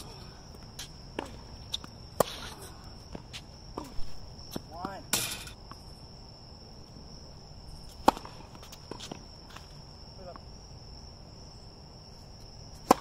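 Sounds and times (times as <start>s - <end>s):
crickets chirring: 0.0s - 13.0s
racket hitting tennis ball: 0.7s - 5.6s, 7.9s - 9.6s, 12.8s - 13.0s.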